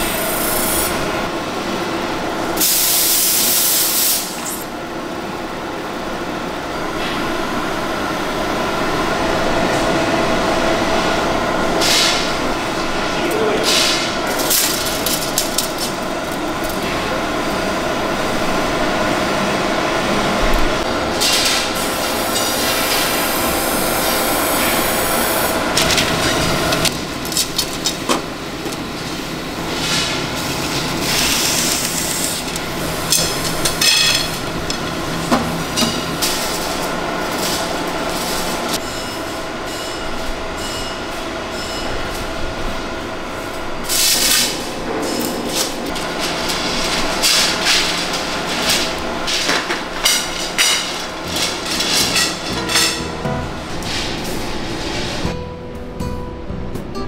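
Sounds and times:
factory machinery hum: 0.0s - 57.0s.

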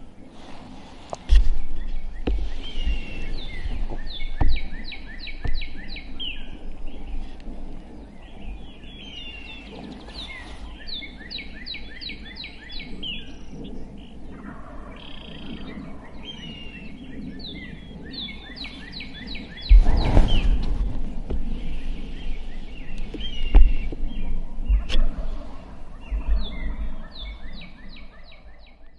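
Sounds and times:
songbirds singing: 0.0s - 28.9s
thumps on the microphone: 2.2s - 5.7s, 23.1s - 24.1s.

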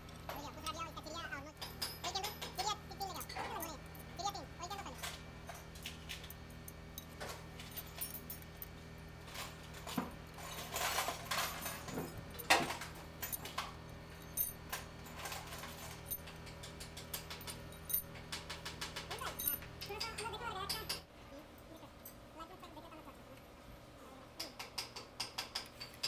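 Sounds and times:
steady low hum: 0.0s - 24.4s
metal parts clicking and clinking: 1.4s - 21.1s.

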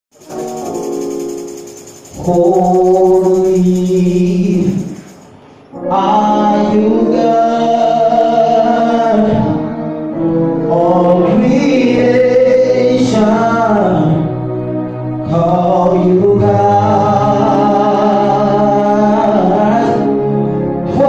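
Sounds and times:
male vocal group singing gospel: 2.1s - 5.2s, 5.8s - 9.7s, 10.7s - 14.3s, 15.3s - 20.2s.

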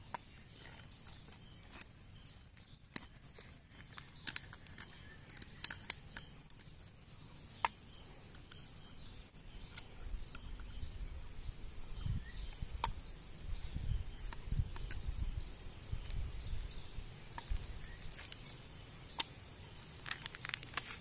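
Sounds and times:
metallic clicks and ticks: 3.9s - 8.7s.

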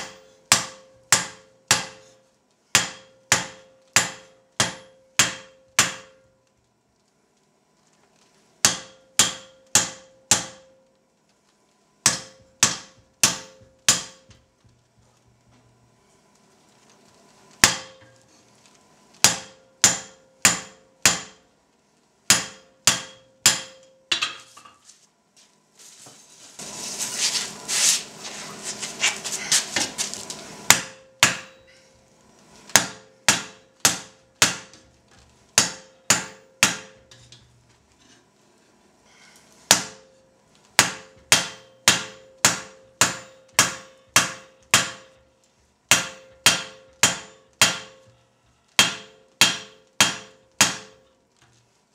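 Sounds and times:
hammer striking steel on anvil: 0.0s - 6.4s, 8.6s - 10.8s, 12.0s - 14.5s, 17.6s - 18.3s, 19.2s - 21.4s, 22.3s - 24.8s, 30.7s - 31.9s, 32.7s - 34.9s, 35.6s - 37.5s, 39.7s - 40.2s, 40.8s - 45.3s, 45.9s - 51.1s
anvil ringing: 30.7s - 31.9s, 48.8s - 51.0s.

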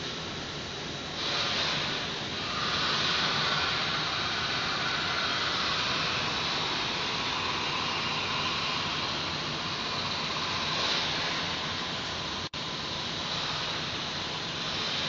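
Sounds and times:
outdoor ambient hiss: 0.0s - 15.0s.

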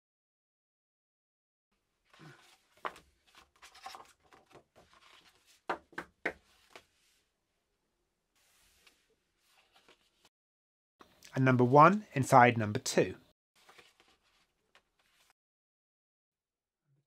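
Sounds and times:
paper rustling and scraping: 2.1s - 5.7s, 8.4s - 10.3s, 13.6s - 15.4s.

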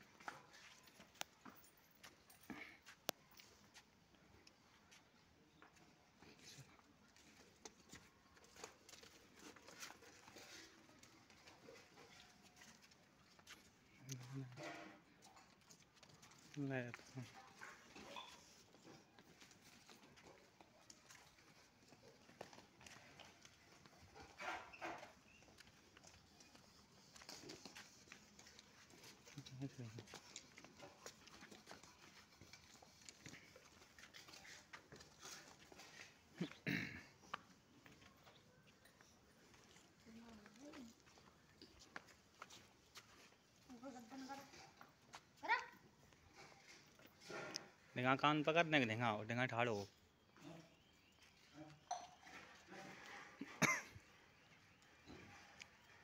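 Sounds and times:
goat hooves on brick paving: 0.0s - 14.3s, 15.0s - 47.8s
footsteps on brick paving: 25.1s - 47.2s.

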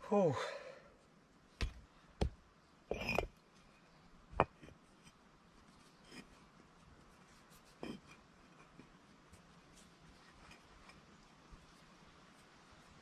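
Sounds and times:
bricks knocking: 1.6s - 3.3s.

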